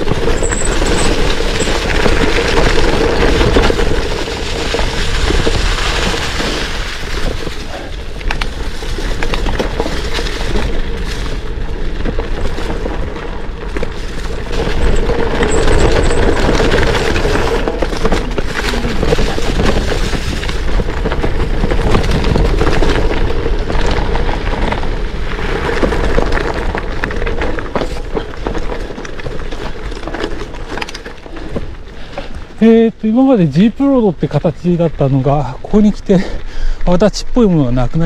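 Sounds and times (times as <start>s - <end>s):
deep low rumble: 0.0s - 29.4s
bike knocks and rattles: 0.0s - 32.6s
bike tyres on gravel: 0.0s - 38.0s.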